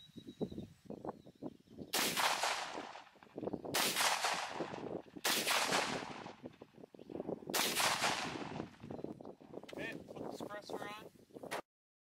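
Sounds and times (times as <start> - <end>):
rifle shots echoing: 1.9 - 6.6, 7.5 - 8.8.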